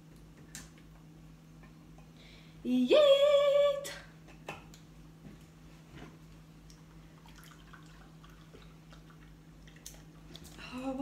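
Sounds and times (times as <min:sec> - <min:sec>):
milk pouring into a jug: 0:07.0 - 0:10.6.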